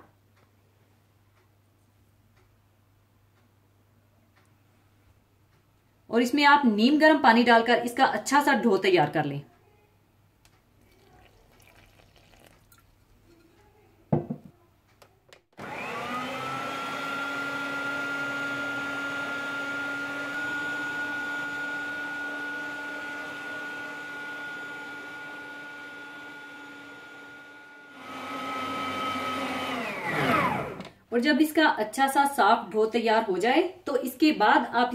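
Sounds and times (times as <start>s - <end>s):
kitchen mixer motor whining: 15.6s - 30.9s.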